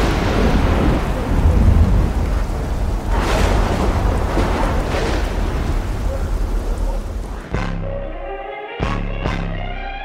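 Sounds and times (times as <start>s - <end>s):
rolling thunder: 0.0s - 7.5s
rain: 0.0s - 7.6s.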